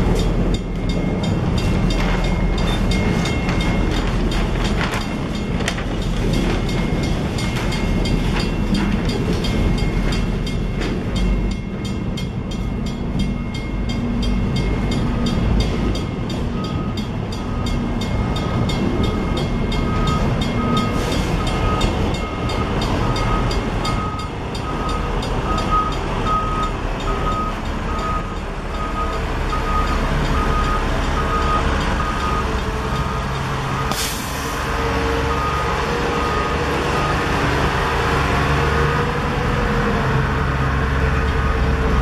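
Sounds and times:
diesel engines rumbling: 0.0 - 42.0
train rolling past: 0.0 - 42.0
air release hiss: 33.9 - 34.6.

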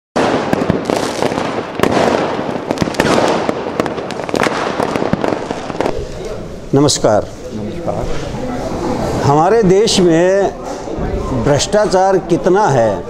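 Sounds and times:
fireworks popping and crackling: 0.2 - 8.3.

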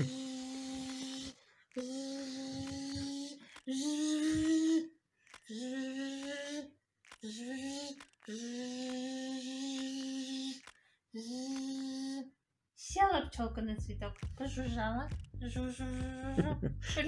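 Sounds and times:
woman buzzing like a bee: 0.0 - 4.9, 5.5 - 12.2.

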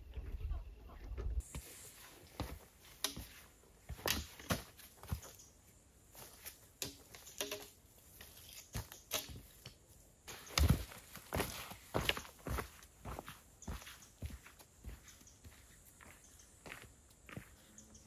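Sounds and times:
footsteps on loose rocks: 1.4 - 5.4, 8.0 - 17.6
trekking poles clicking on stone: 2.2 - 5.6, 6.2 - 12.6.

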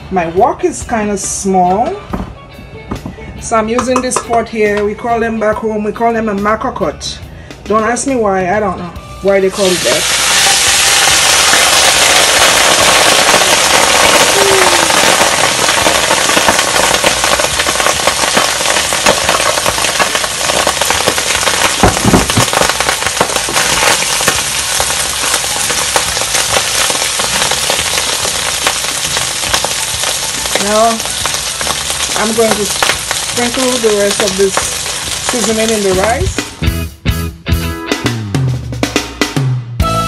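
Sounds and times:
knock on metal pot: 3.8 - 4.4, 21.8 - 22.6
rice sizzling in hot oil: 9.5 - 36.4.

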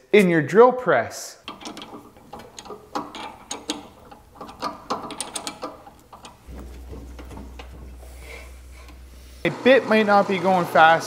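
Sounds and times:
drill chuck clicking and rattling: 1.5 - 6.5
steady low hum: 1.5 - 11.0.

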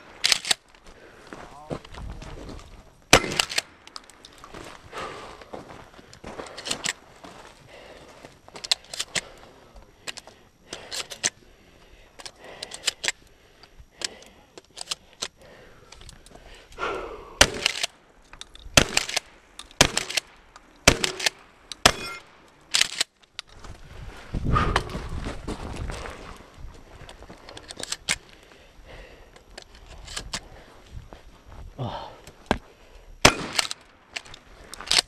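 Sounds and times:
gun handling clicks and knocks: 0.0 - 0.8, 3.1 - 4.8, 6.2 - 7.0, 8.5 - 9.4, 10.0 - 11.4, 12.1 - 16.4, 17.4 - 23.7, 27.0 - 28.5, 29.3 - 30.5, 32.2 - 35.0
shotgun shots: 3.1 - 3.8, 17.4 - 17.9, 18.8 - 22.9, 33.2 - 33.8.

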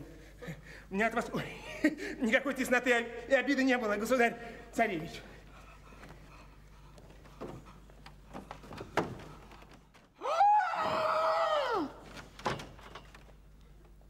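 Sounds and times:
thuds: 7.3 - 10.1.

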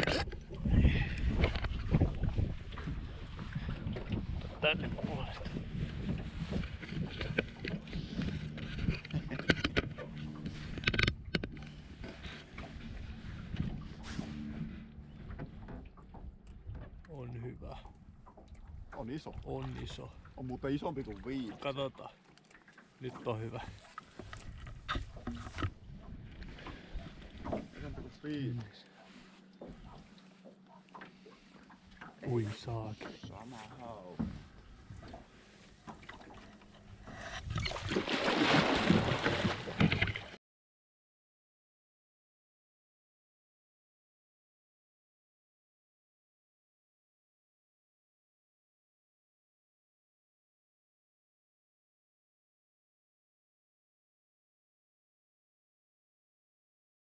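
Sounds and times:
water lapping against boat hull: 0.0 - 40.4
wind: 0.0 - 40.4
fish thrashing and splashing water: 37.4 - 40.4.

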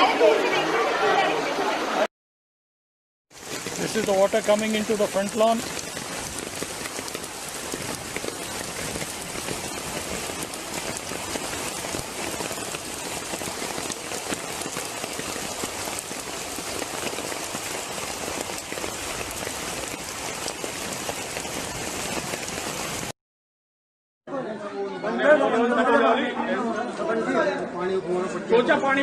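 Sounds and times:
floodwater rushing: 0.0 - 2.1, 3.3 - 23.1
heavy rain: 0.0 - 2.1, 3.3 - 23.1.

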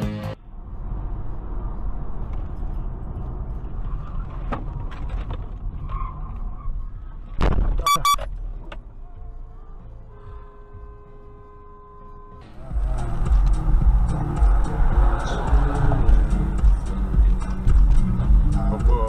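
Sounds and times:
car road and engine rumble: 0.0 - 19.0
car horn blasts: 7.8 - 8.3, 10.1 - 12.6.

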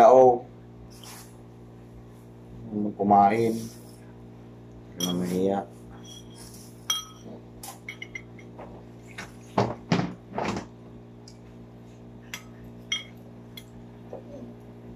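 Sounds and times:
steady low hum: 0.0 - 14.9
spoon clinking on ceramic bowl: 5.0 - 5.3, 6.0 - 8.5, 12.4 - 13.7.

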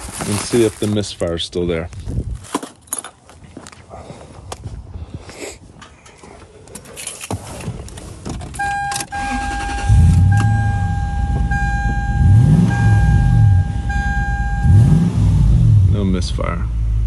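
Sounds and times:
keys rattling: 5.8 - 9.1
car engine cranking and revving: 7.8 - 17.0
car warning chime: 8.6 - 15.2.

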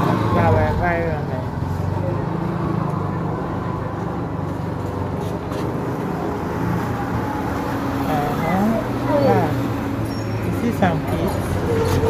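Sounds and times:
street noise: 0.0 - 12.0.

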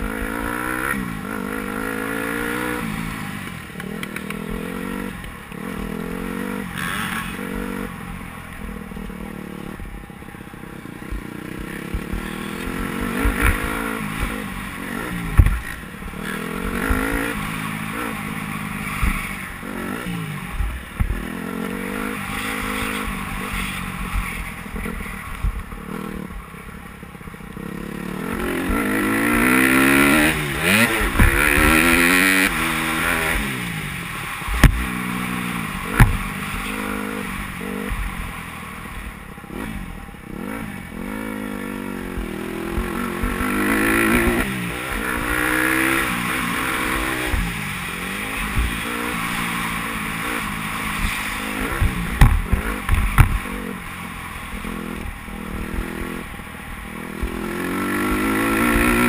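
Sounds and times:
dirt bike engine revving: 0.0 - 59.0
sharp knocks: 51.8 - 53.4.

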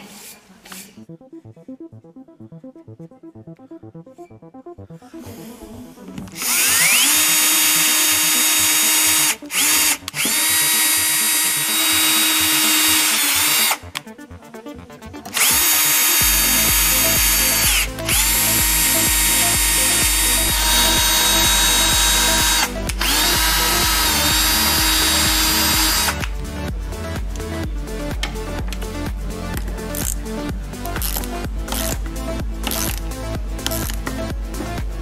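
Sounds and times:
background music with a beat: 1.0 - 35.0
cordless drill motor whining: 6.2 - 13.8, 15.3 - 26.3.

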